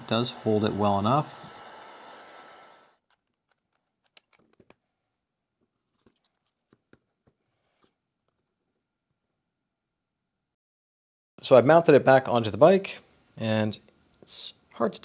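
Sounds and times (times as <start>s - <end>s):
steady hiss: 0.0s - 3.0s
hands handling plastic cover: 3.0s - 5.0s.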